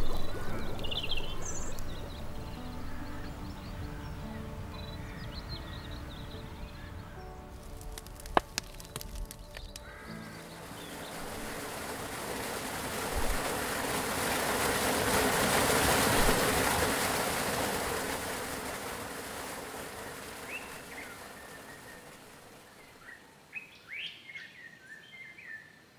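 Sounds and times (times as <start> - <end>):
rushing noise: 0.0 - 4.8, 9.9 - 23.4
birds chirping: 0.0 - 15.0, 16.0 - 25.7.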